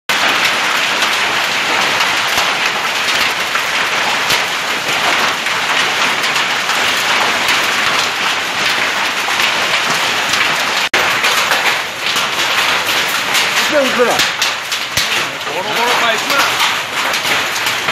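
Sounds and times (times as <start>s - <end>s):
hailstones clicking on hard surfaces: 0.1s - 17.9s
heavy rain hissing: 6.6s - 17.9s.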